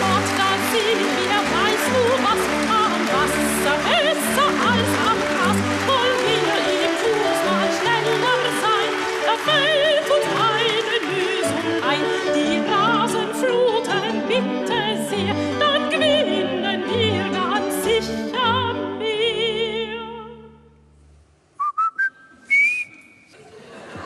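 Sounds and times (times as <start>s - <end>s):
piano accompaniment: 0.0s - 20.1s
woman singing operatic song: 0.0s - 20.7s
short rising whistles: 21.6s - 23.3s.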